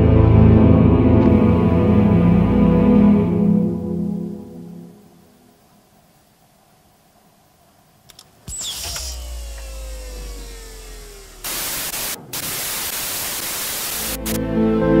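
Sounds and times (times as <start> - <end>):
music: 0.0 - 5.3, 14.0 - 15.0
loud static hiss: 3.9 - 15.0
whine falling in pitch: 8.5 - 14.4
low rumble: 9.0 - 14.1.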